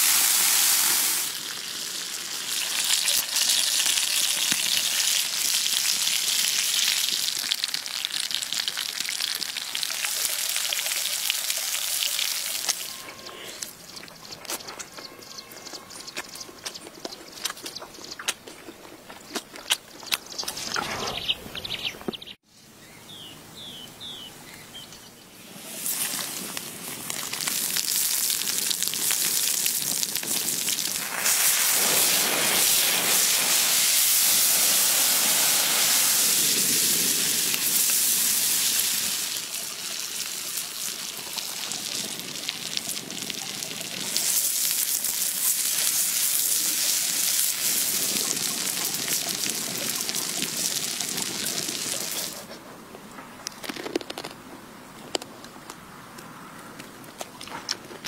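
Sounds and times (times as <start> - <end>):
food sizzling in oil: 0.0 - 13.3, 25.5 - 52.4.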